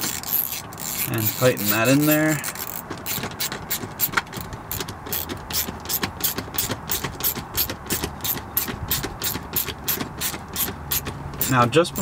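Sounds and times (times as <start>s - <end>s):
ratchet driver clicking: 0.0s - 12.0s.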